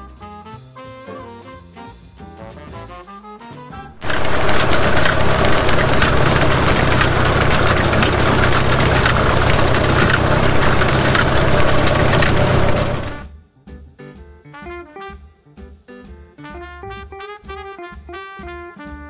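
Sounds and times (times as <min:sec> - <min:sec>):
engine droning: 0:04.0 - 0:13.2
wheels clattering on rails: 0:04.0 - 0:13.3.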